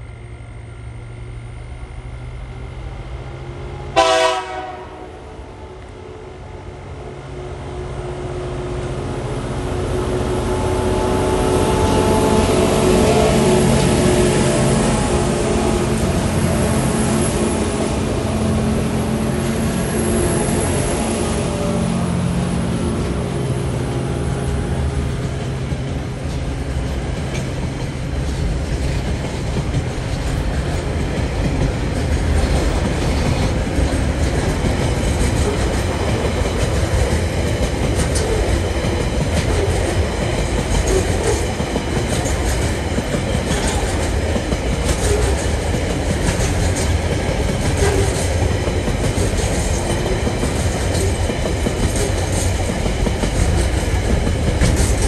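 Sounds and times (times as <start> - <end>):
diesel locomotive engine: 0.0 - 55.0
train wagons rumbling: 6.4 - 55.0
wheels clacking over rail joints: 22.8 - 55.0.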